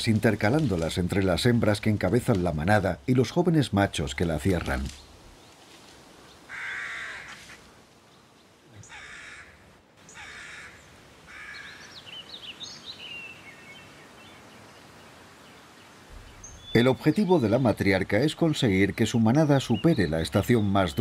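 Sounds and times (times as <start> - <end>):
crow cawing: 6.5 - 7.5, 8.8 - 11.9
small bird chirping: 15.4 - 17.2.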